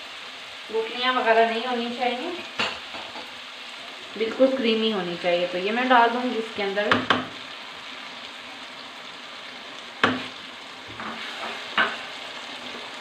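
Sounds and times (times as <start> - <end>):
curry sizzling in a pan: 0.0 - 13.0
spatula knocking on pan: 6.9 - 7.4, 10.0 - 10.3.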